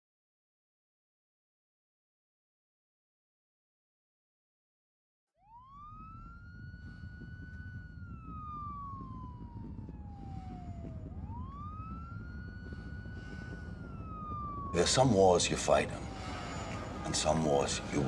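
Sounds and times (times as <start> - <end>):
siren wailing: 5.4 - 18.0
low steady rumble: 5.6 - 18.0.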